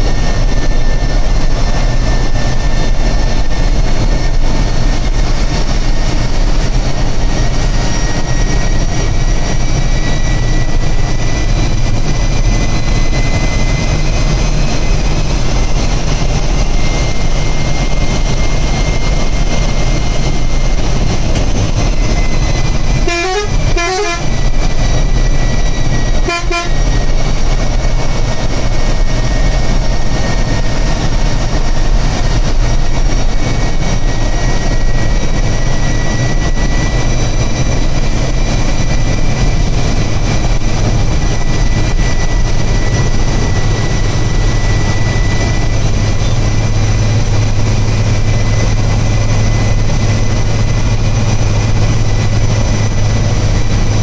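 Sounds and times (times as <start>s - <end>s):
bus diesel engine running: 0.0s - 54.0s
bus horn toots: 23.0s - 24.5s, 26.1s - 27.0s
steady high whistle: 40.6s - 54.0s.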